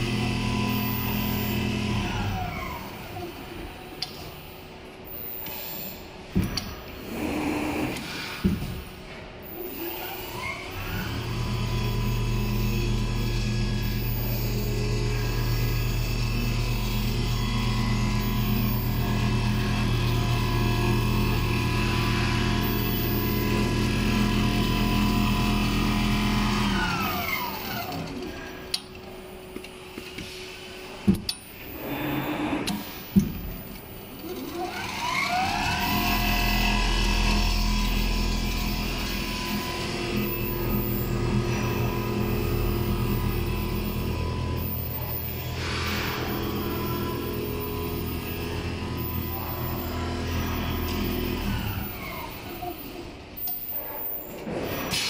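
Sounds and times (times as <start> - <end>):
sewing machine whining: 0.0 - 3.6, 9.6 - 28.7, 34.2 - 55.0.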